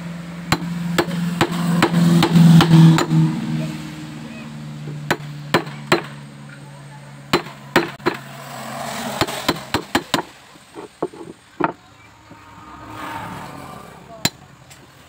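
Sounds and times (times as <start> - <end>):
hammer striking chisel: 0.5 - 3.2, 5.1 - 6.2, 7.3 - 8.3, 9.2 - 11.8.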